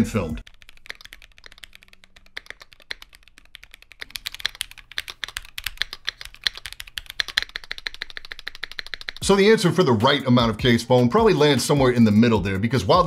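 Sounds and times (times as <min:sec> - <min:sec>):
muted keyboard typing: 0:00.4 - 0:09.6.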